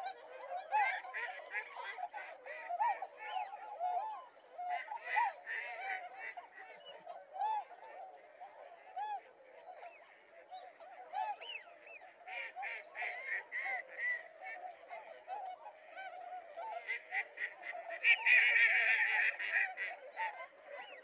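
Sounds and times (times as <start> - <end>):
ducks quacking: 12.3 - 21.0.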